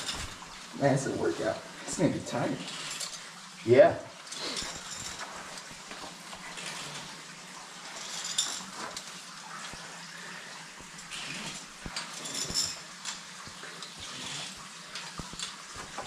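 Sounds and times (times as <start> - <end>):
rope and harness rustling: 0.0 - 3.6, 4.2 - 16.0
metallic clicks of climbing gear: 2.4 - 3.4, 4.2 - 7.2, 10.9 - 16.0.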